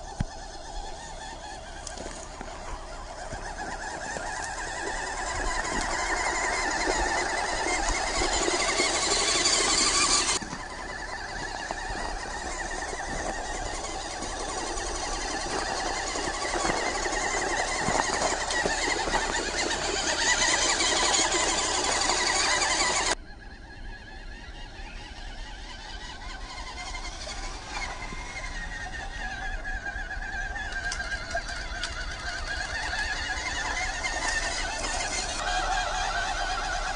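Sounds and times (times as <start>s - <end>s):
electric toy car motor whining: 0.0s - 36.9s.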